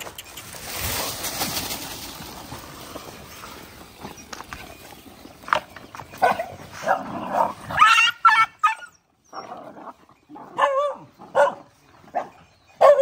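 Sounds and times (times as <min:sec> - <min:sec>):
dogs yelping and barking: 0:05.4 - 0:13.0.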